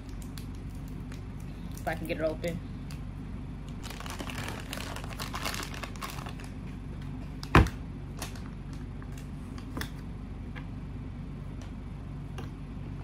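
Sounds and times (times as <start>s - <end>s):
bag crinkling: 3.8s - 6.6s.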